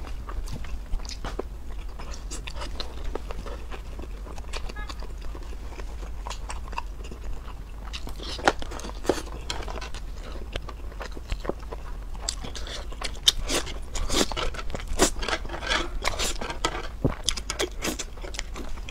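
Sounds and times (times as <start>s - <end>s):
biting and chewing: 0.0s - 18.9s
slurping noodles: 12.4s - 18.1s.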